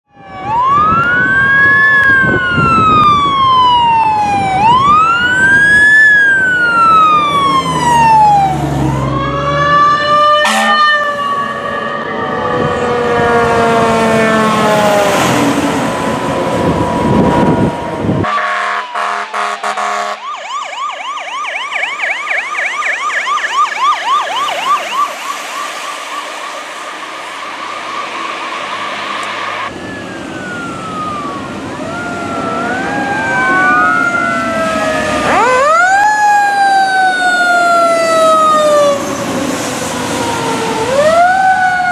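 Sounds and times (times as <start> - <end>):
fire truck siren wailing: 0.0 - 41.9
siren yelping: 0.1 - 41.9
fire truck horn blasts: 10.2 - 11.4, 16.7 - 20.3.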